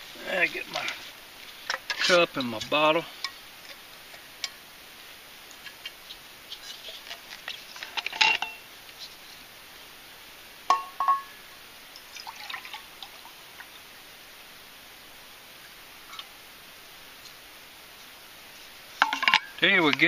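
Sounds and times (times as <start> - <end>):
liquid pouring into cup: 12.1 - 13.4.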